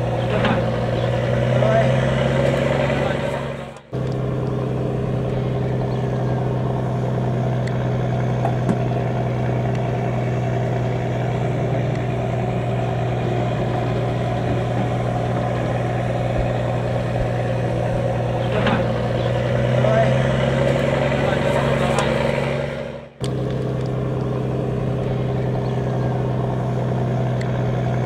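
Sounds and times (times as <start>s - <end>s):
boat diesel engine droning: 0.0s - 28.0s.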